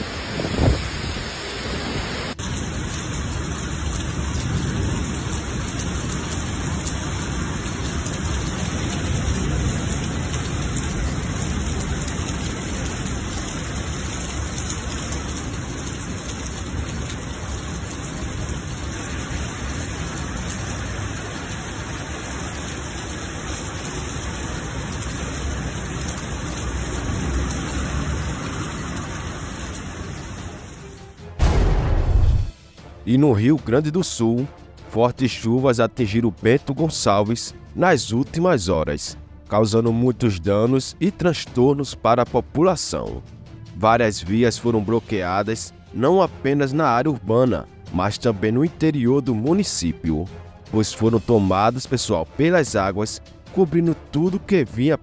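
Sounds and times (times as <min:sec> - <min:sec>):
heavy rain pouring: 0:00.0 - 0:31.3, 0:39.8 - 0:55.0
low rumble: 0:31.4 - 0:32.6.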